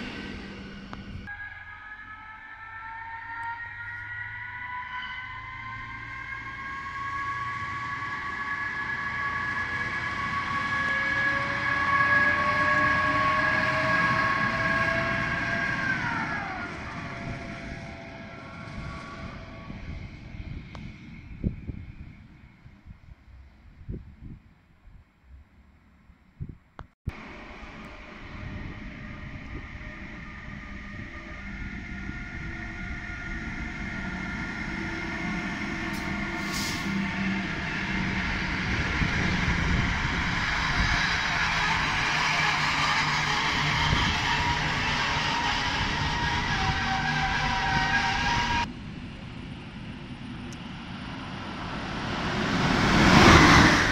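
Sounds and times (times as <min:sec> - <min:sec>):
railcar passing with whine: 0:00.0 - 0:26.2, 0:27.1 - 0:53.9
brief high hiss: 0:35.9 - 0:37.0.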